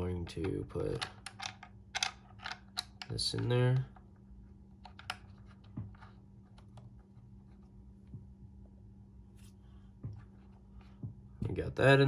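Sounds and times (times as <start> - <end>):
plastic parts clicking and knocking: 0.2 - 4.2, 4.8 - 6.9.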